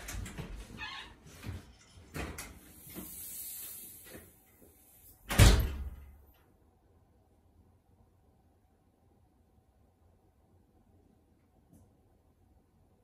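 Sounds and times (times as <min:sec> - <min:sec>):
hiss: 0:02.6 - 0:05.4
door banging shut: 0:05.3 - 0:06.1.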